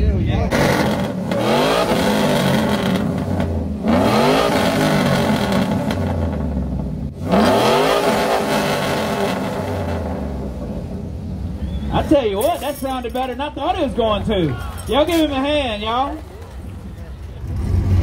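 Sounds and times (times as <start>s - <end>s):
pickup truck engine revving: 0.4s - 12.2s, 16.1s - 18.0s.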